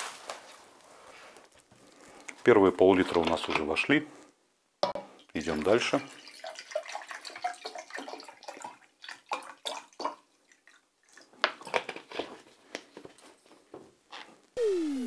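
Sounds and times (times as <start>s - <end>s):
water splashing into a jug: 5.4s - 11.7s.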